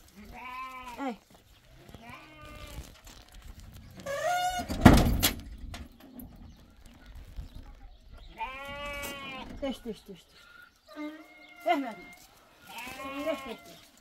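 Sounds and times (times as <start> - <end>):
goats and sheep bleating: 0.0 - 3.2, 8.3 - 9.8, 10.5 - 14.0
stable door banging shut: 4.2 - 5.9.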